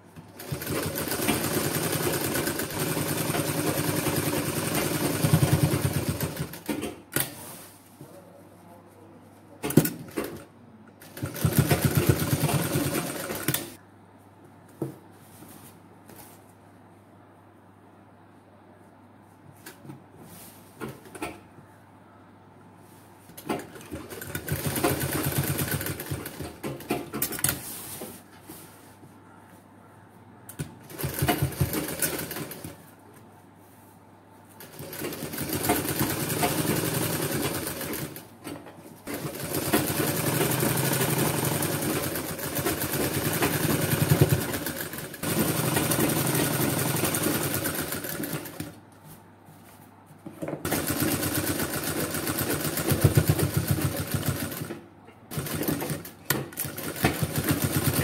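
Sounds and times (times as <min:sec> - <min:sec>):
sewing machine stitching: 0:00.2 - 0:07.4, 0:11.0 - 0:13.8, 0:23.4 - 0:27.6, 0:30.8 - 0:32.7, 0:34.6 - 0:38.3, 0:39.0 - 0:48.8, 0:50.6 - 0:58.0.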